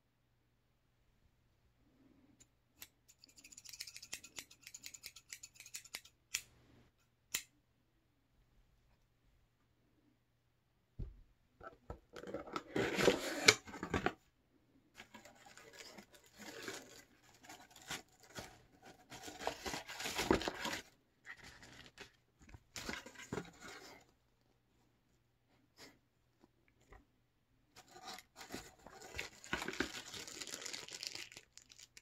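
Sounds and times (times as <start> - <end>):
cardboard box opening: 12.2 - 14.2
paper packing rustling and tearing: 15.0 - 22.2, 27.9 - 32.0.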